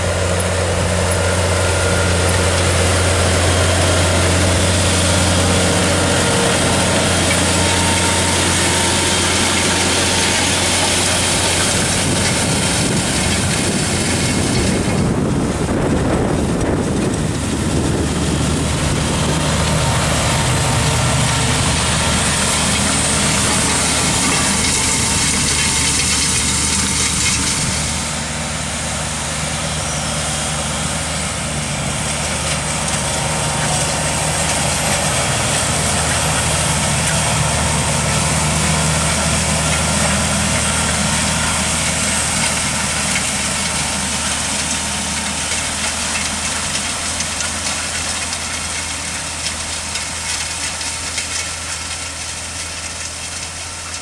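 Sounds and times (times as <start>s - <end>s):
seed drill working soil: 0.0s - 54.0s
tractor diesel engine running: 0.0s - 54.0s.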